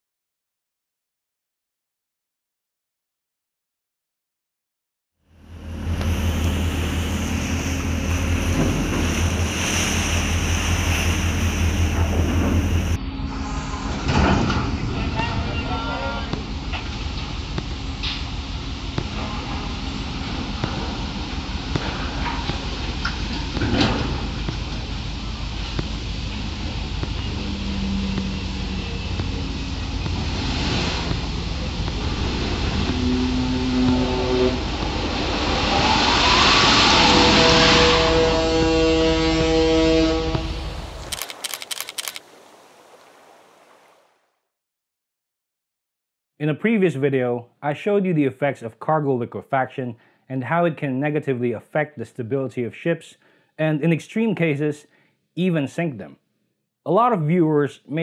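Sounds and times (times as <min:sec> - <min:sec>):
steady low rumble: 0:05.4 - 0:35.9, 0:37.6 - 0:42.2
faint hum: 0:05.4 - 0:37.2
open sea rushing: 0:05.6 - 0:44.1.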